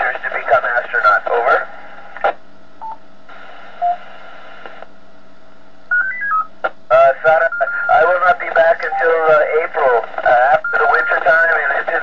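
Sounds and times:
radio hiss: 0:00.0 - 0:02.4, 0:03.3 - 0:04.9, 0:06.9 - 0:12.0
radio click: 0:02.2 - 0:02.4, 0:04.6 - 0:04.9
radio beeps: 0:05.9 - 0:06.5, 0:07.2 - 0:12.0.

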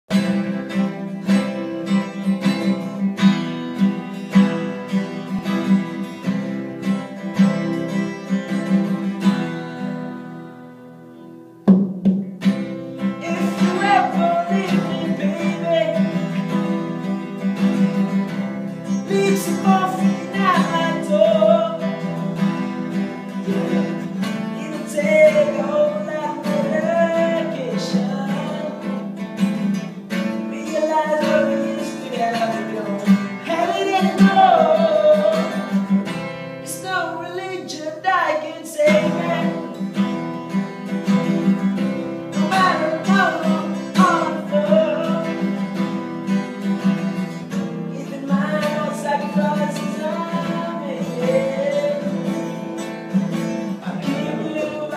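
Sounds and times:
acoustic guitars strummed and picked: 0:00.1 - 0:54.9
person singing: 0:13.2 - 0:17.1, 0:18.7 - 0:22.4, 0:23.1 - 0:29.2, 0:30.1 - 0:40.0, 0:42.3 - 0:45.8, 0:47.8 - 0:54.9.

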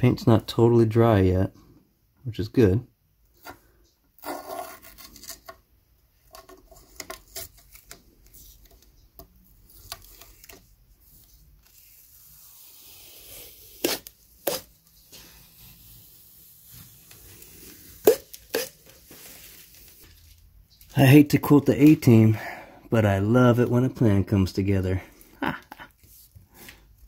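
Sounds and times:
masking tape peeling and tearing: 0:09.6 - 0:20.1.

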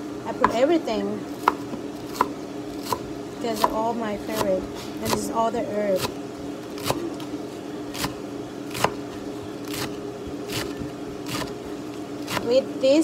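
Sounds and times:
steady hum: 0:00.0 - 0:13.0
knife chopping on wooden board: 0:01.4 - 0:03.0, 0:08.0 - 0:09.0.

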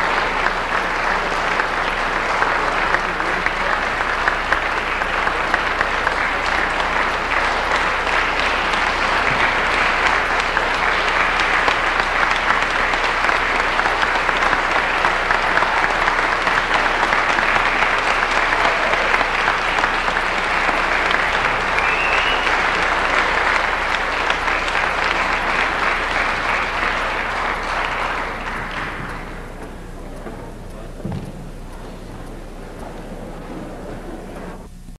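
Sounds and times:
audience applauding: 0:00.0 - 0:34.9.

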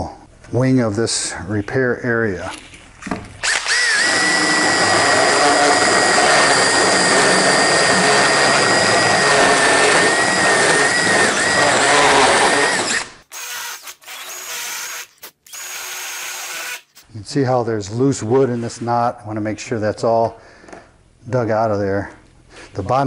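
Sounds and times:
drill grinding wood: 0:03.4 - 0:17.0.

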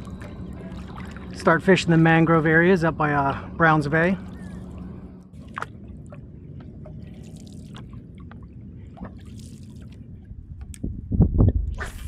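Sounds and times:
steady low rumble: 0:00.0 - 0:12.0
light splashes: 0:04.2 - 0:10.8.

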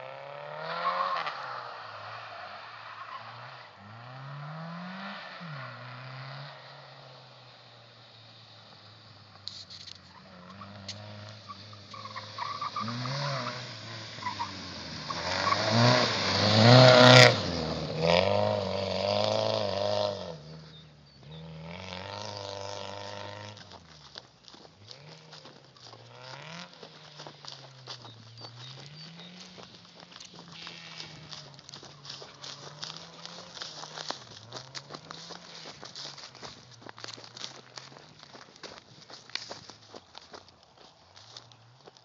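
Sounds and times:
car engine revving hard: 0:10.5 - 0:20.5, 0:21.3 - 0:23.6.

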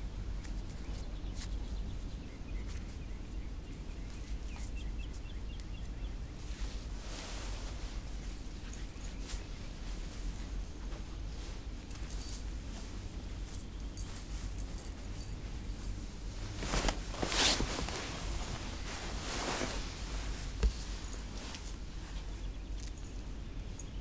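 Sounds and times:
low room hum: 0:00.0 - 0:24.0
bedding rustling: 0:06.4 - 0:23.2.

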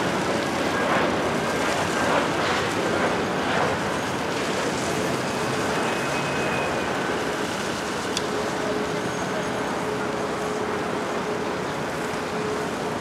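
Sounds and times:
jet engine rush: 0:00.0 - 0:13.0.

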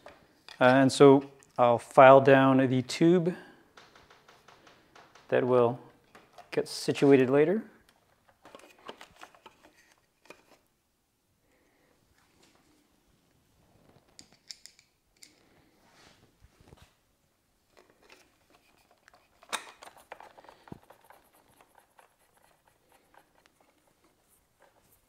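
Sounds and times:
screwdriver and small parts clicking: 0:14.2 - 0:15.4.

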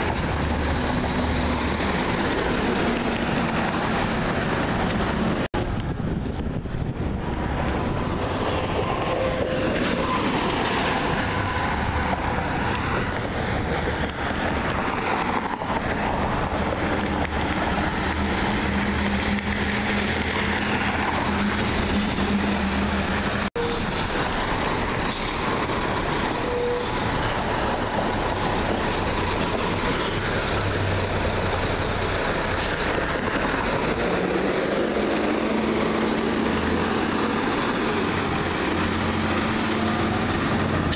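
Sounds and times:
passing traffic: 0:00.0 - 0:40.9
garbage truck diesel engines: 0:15.6 - 0:40.9.

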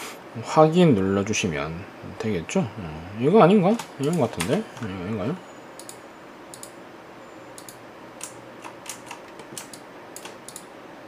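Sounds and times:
keyboard and mouse clicking: 0:05.8 - 0:06.8, 0:07.6 - 0:10.7.

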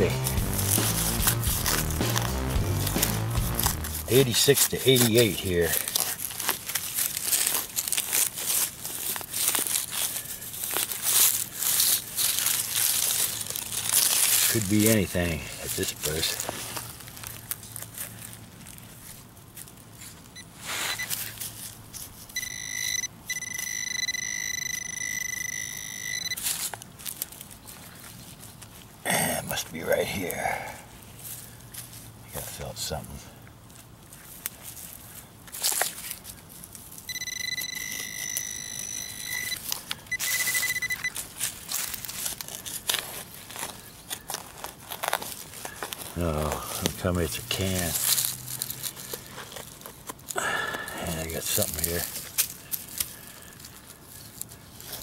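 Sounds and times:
hand scraping soil and grass: 0:00.0 - 0:55.0
high electronic beep: 0:22.4 - 0:26.4, 0:37.1 - 0:41.1.

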